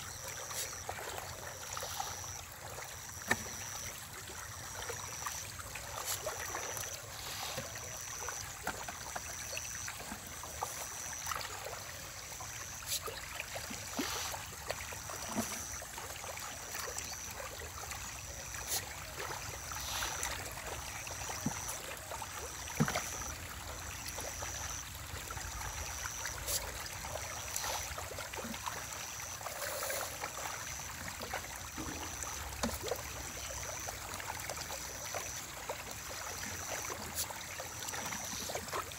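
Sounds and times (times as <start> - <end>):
fish splashing at water surface: 12.8 - 15.8.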